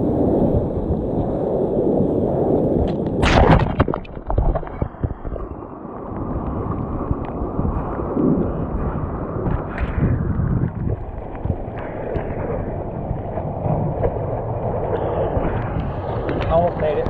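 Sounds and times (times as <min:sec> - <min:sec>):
wind rumbling on microphone: 0:00.0 - 0:17.0
rushing water: 0:02.9 - 0:17.0
loud crash: 0:03.2 - 0:04.5.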